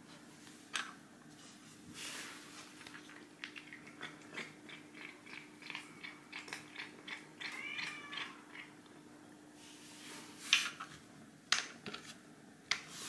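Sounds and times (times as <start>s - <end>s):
cat crunching kibble: 2.8s - 8.8s.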